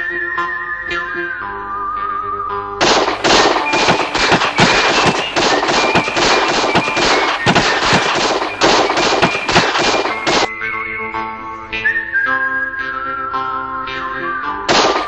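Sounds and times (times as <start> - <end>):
rapid pistol gunshots: 2.8 - 10.5, 14.7 - 15.0.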